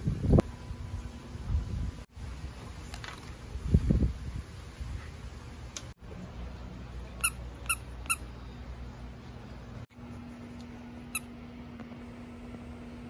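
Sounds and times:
dog toy squeaks: 7.2 - 8.2.

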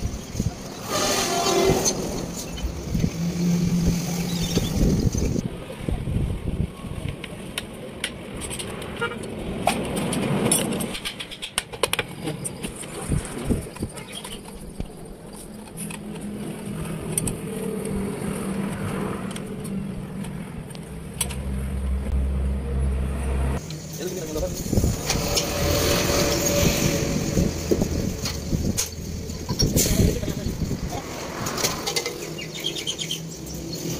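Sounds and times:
deep rumble: 16.2 - 31.8.

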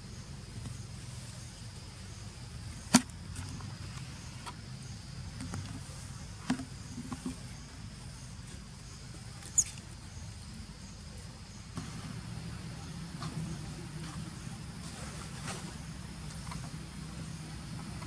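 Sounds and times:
insect drone: 0.0 - 18.0.

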